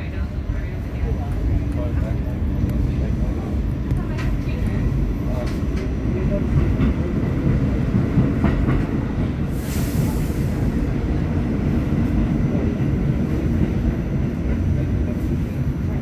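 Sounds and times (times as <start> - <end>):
train wheels rumbling on track: 0.0 - 16.0
brief hiss: 9.5 - 10.6.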